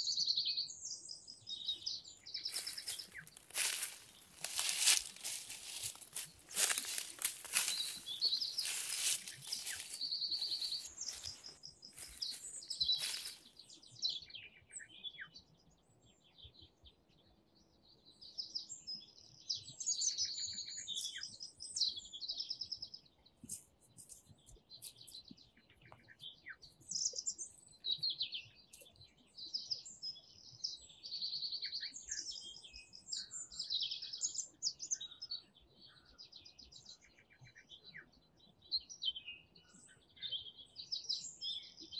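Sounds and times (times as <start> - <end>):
songbirds chirping and singing: 0.0 - 41.9
loud crackling rustle: 2.5 - 13.5.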